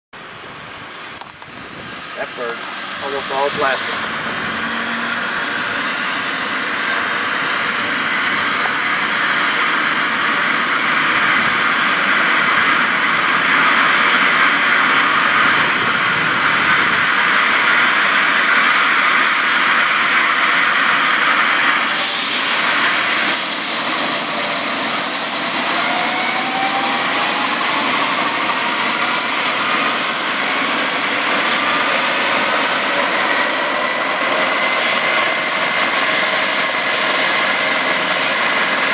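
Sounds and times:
helicopter turbine engines starting: 0.2s - 38.9s
whistling tones rising in pitch: 24.2s - 35.0s.

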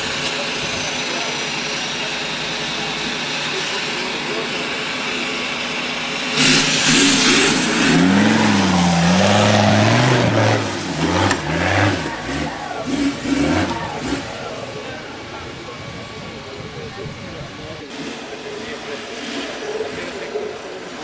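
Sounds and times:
off-road engine revving: 0.0s - 21.0s
spinning tyres throwing dirt: 6.3s - 15.1s.

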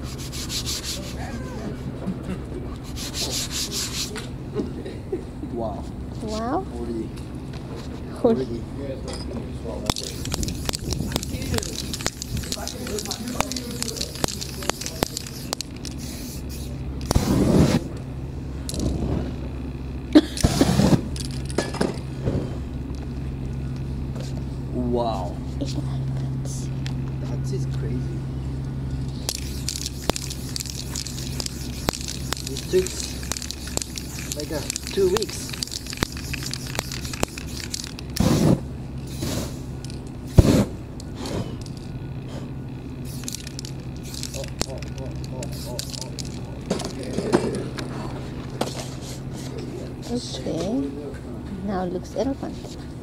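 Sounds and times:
spray-paint can hissing: 0.0s - 1.2s, 2.8s - 4.2s, 9.9s - 17.8s, 29.3s - 40.6s, 43.0s - 46.4s
steady low hum: 0.0s - 53.0s
sharp clicks: 9.9s - 16.0s, 29.3s - 38.3s
flames flaring: 9.9s - 24.4s, 29.0s - 50.2s.

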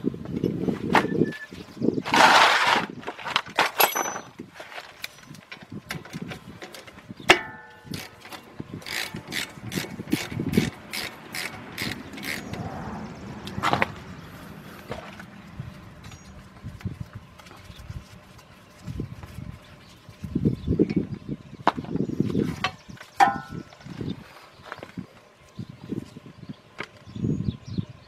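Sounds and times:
metallic clink: 3.8s - 4.3s
ratchet wrench clicking: 8.8s - 12.7s.

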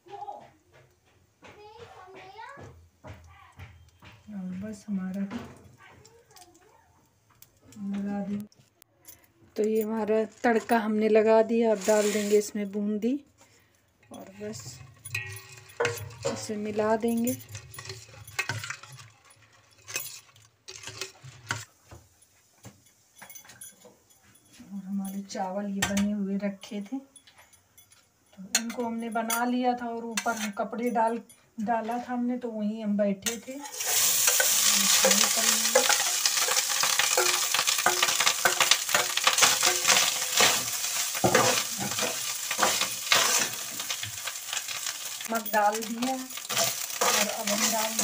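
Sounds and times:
rice sizzling in hot oil: 11.5s - 12.6s, 14.4s - 23.2s, 33.3s - 48.0s
spoon scraping steel pot: 11.7s - 12.6s, 14.2s - 21.7s, 33.2s - 48.0s.

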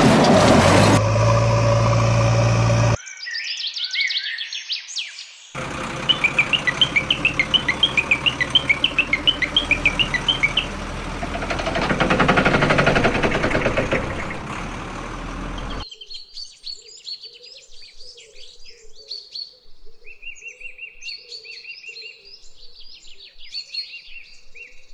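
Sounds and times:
birds chirping and singing: 2.9s - 14.6s, 15.4s - 24.9s
fast high chirps: 6.0s - 10.8s.

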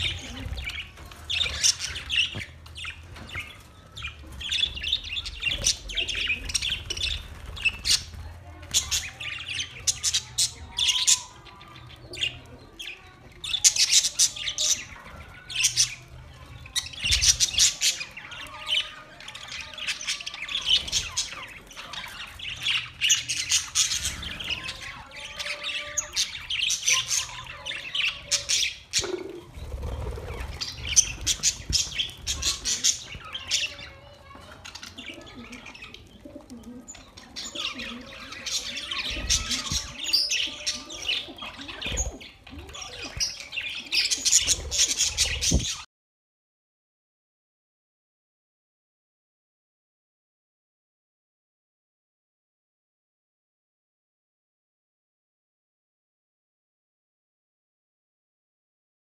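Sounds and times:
budgerigars chirping and chattering: 0.0s - 45.8s.

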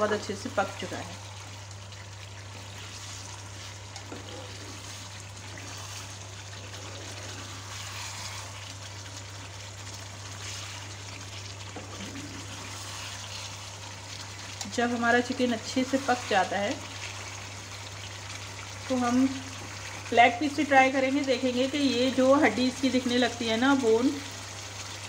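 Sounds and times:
gravy sizzling in a pan: 0.0s - 25.0s
spatula stirring: 1.8s - 19.0s.

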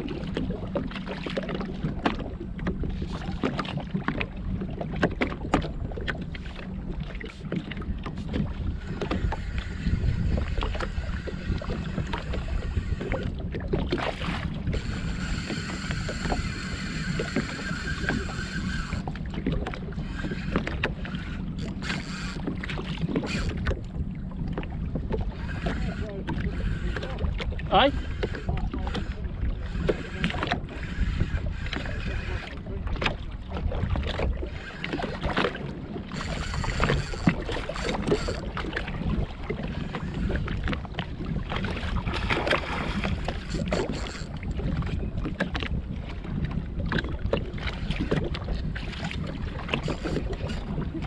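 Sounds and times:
water slapping against hull: 0.0s - 51.0s
wind on microphone: 0.0s - 51.0s
steady high whirr: 6.7s - 13.4s, 14.1s - 24.0s, 25.2s - 32.8s, 34.4s - 35.4s, 36.0s - 38.6s, 39.6s - 40.7s, 41.9s - 45.0s, 49.4s - 51.0s.

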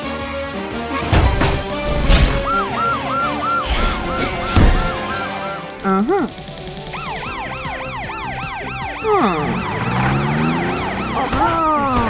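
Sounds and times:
falling siren swoops: 1.9s - 5.8s, 6.9s - 12.0s
cartoon police siren yelping: 2.2s - 6.3s, 6.9s - 12.0s.

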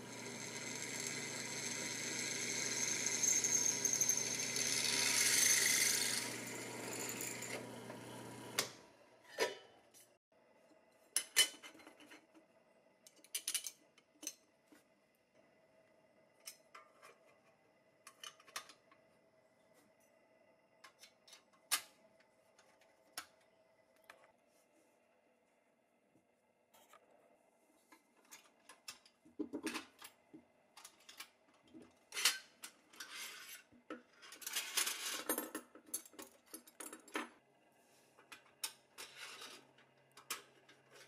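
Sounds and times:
drill press motor hum: 0.0s - 8.9s
drill bit squealing: 0.1s - 7.6s.

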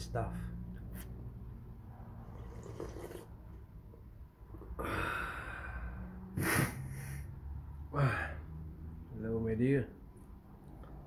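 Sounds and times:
man breathing noisily: 4.7s - 7.4s.

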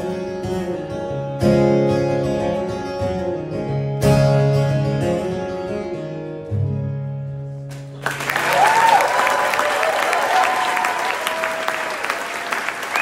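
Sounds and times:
strummed acoustic guitar chords: 0.0s - 8.0s
audience applause and cheering: 7.9s - 13.0s.

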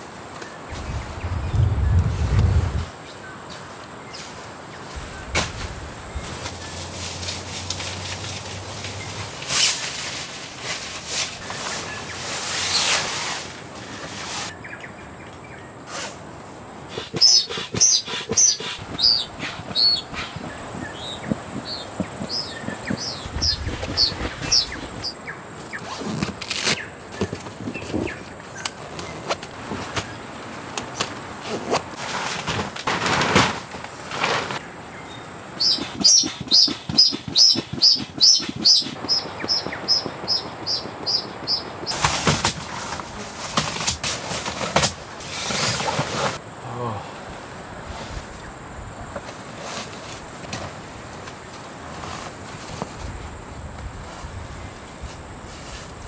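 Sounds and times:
songbird chirping: 13.9s - 15.8s, 16.9s - 29.4s, 34.6s - 42.0s
knocks and rustles: 17.0s - 25.1s, 30.8s - 34.6s, 35.8s - 46.4s.

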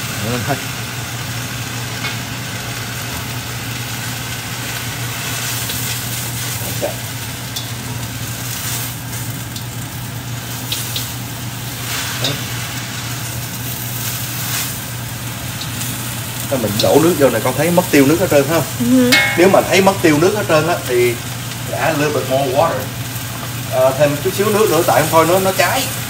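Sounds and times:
vegetables sizzling in a wok: 0.0s - 26.0s
tongs ticking against pan: 19.1s - 19.9s.

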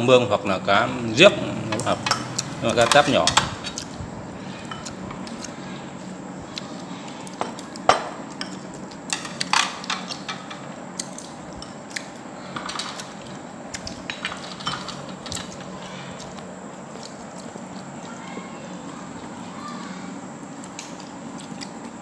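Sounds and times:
chopsticks clinking on porcelain bowls: 1.7s - 3.4s, 14.0s - 16.4s.

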